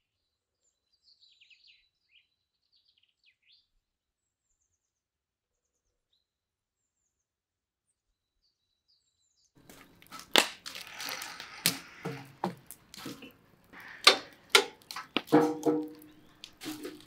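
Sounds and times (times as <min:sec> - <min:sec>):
wood fire crackling: 0:09.6 - 0:17.0
fire hiss: 0:10.1 - 0:15.2
metal tools scraping a pan: 0:10.8 - 0:17.0.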